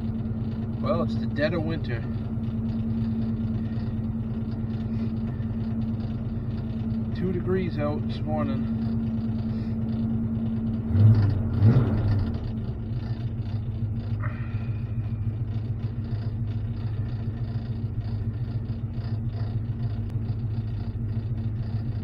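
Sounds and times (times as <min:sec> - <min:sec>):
truck engine running: 0:00.0 - 0:22.0.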